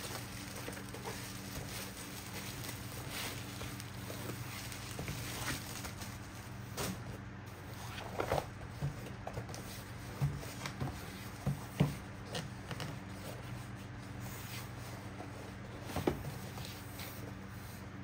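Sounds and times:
cardboard box knocks and scrapes: 8.0s - 12.0s, 15.8s - 16.8s.

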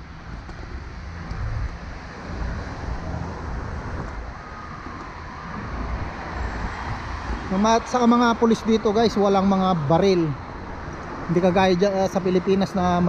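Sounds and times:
car engines and tyres rumbling: 0.0s - 13.0s
wind buffeting microphone: 0.0s - 13.0s.

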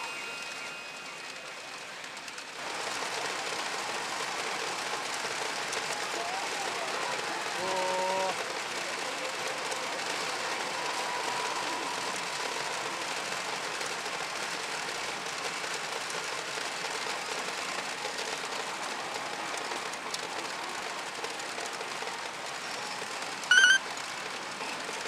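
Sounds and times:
pachinko machines running: 0.0s - 25.0s
short loud high tone: 23.5s - 23.8s.

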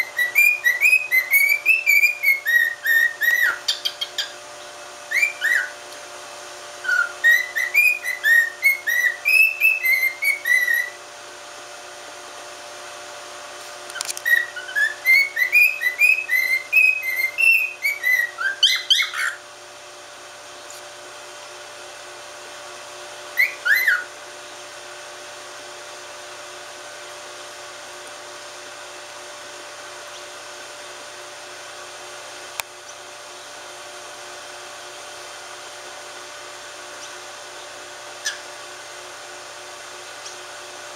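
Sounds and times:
cockatiel whistling: 0.0s - 4.4s, 5.1s - 5.8s, 6.8s - 11.0s, 14.2s - 19.4s, 23.4s - 24.1s
steady hum: 0.0s - 40.9s.

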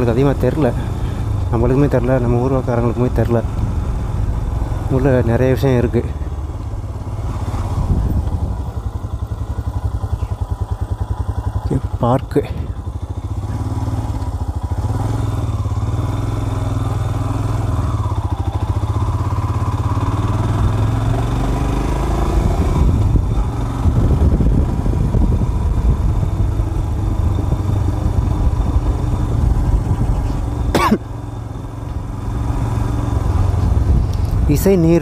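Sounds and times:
motorcycle engine running: 0.0s - 35.0s
wind noise on microphone: 7.3s - 8.8s, 22.5s - 30.4s.

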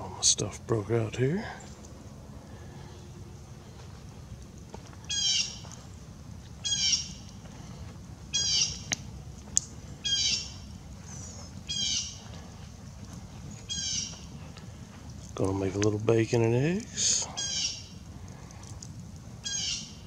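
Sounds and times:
campfire wood popping: 1.1s - 20.0s
bird squawking: 5.1s - 5.7s, 6.6s - 7.2s, 8.3s - 9.0s, 10.0s - 12.3s, 13.6s - 14.4s, 17.0s - 18.0s, 19.4s - 20.0s.

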